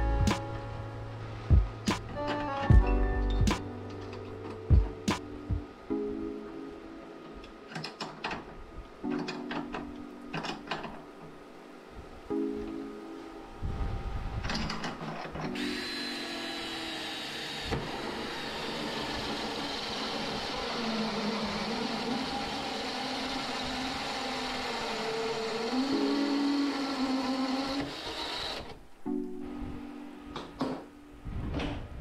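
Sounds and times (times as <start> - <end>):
cordless drill boring metal: 14.8 - 28.8.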